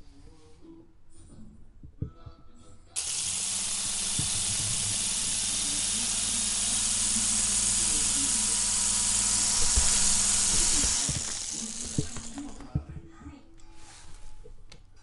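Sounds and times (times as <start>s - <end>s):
toy helicopter motor whirring: 3.0s - 12.6s.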